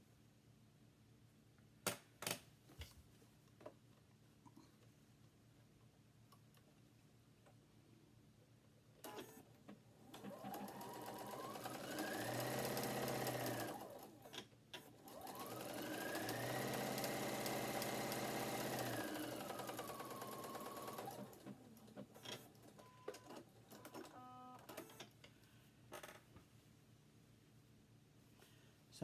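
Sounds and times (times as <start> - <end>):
sewing machine motor whirring: 10.1 - 24.8.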